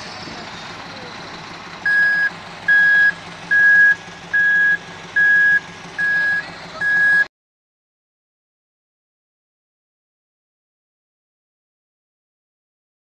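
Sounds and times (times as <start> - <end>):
low engine hum: 0.0 - 7.3
reversing alarm beeping: 0.7 - 7.3.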